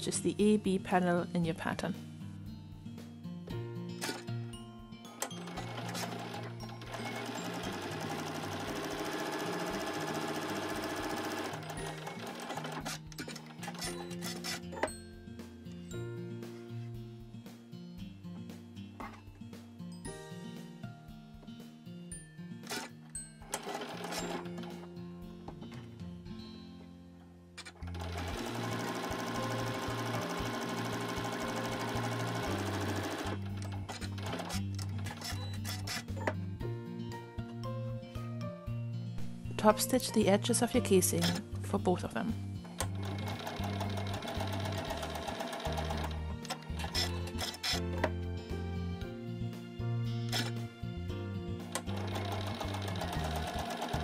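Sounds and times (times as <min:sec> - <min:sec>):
soft background music: 0:00.0 - 0:54.0
sewing machine stitching: 0:05.2 - 0:14.9, 0:22.6 - 0:24.9, 0:27.6 - 0:36.4, 0:41.2 - 0:41.4, 0:42.7 - 0:48.1, 0:50.3 - 0:50.6, 0:51.7 - 0:54.0.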